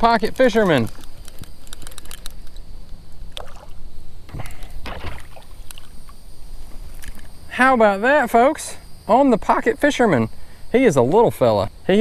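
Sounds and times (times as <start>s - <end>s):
fish splashing at surface: 3.3s - 5.9s.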